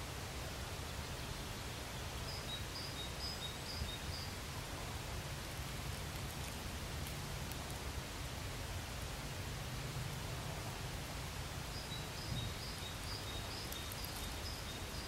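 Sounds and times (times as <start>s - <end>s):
outdoor hiss: 0.0s - 15.0s.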